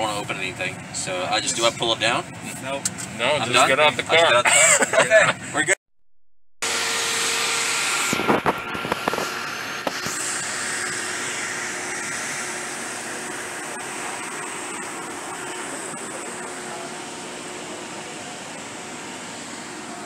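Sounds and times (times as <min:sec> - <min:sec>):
cooling fans whirring: 0:06.7 - 0:20.0
faint high whine: 0:06.9 - 0:20.0.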